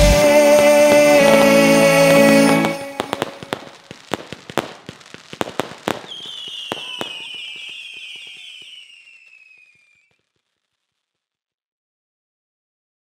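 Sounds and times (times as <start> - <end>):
fireworks bangs and crackles: 0.0 - 10.8
firework whistle falling in pitch: 0.2 - 3.9, 5.6 - 10.2.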